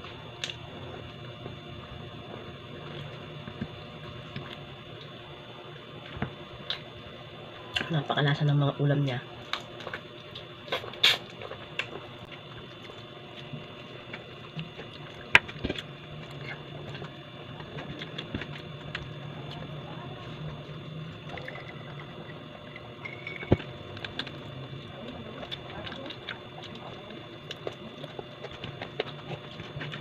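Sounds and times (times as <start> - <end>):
steady low hum: 0.0 - 30.0
person chewing: 9.4 - 30.0.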